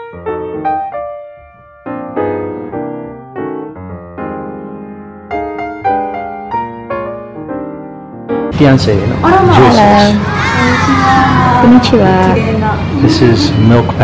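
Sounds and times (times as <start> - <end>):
gentle piano music: 0.0 - 10.2.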